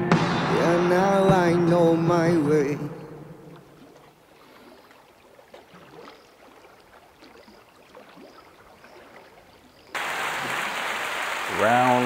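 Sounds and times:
loud steady hiss: 10.0 - 12.0.

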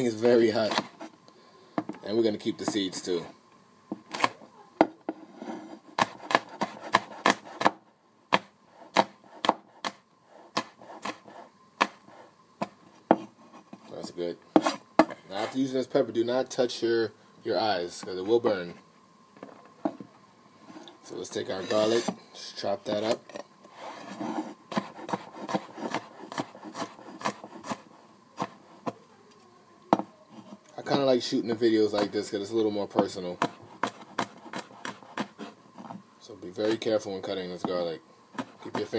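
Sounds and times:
cleaver chopping on wooden board: 6.0 - 11.2, 11.8 - 12.0, 24.7 - 27.8, 33.0 - 35.3.

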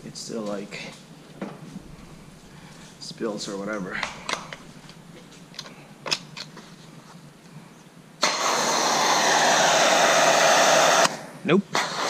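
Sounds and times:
pressure washer spraying: 8.2 - 11.1, 11.8 - 12.0.

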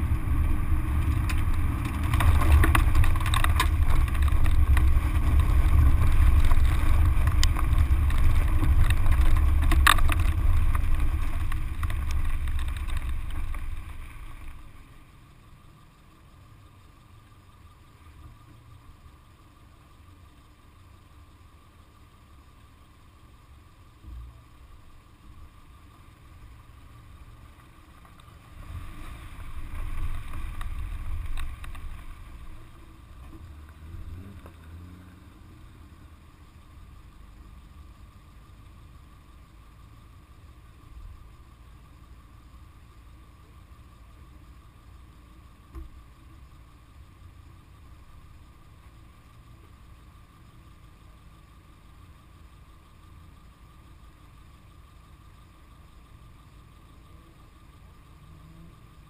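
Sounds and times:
stones ticking: 0.0 - 14.9, 27.6 - 34.7
car driving on gravel: 0.0 - 59.0.

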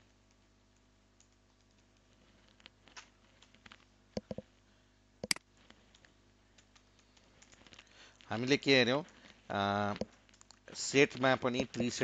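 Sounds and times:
computer keyboard clicks: 0.0 - 2.0, 5.2 - 7.8, 10.0 - 10.6
mouse clicks: 4.2 - 4.4, 5.2 - 5.4.

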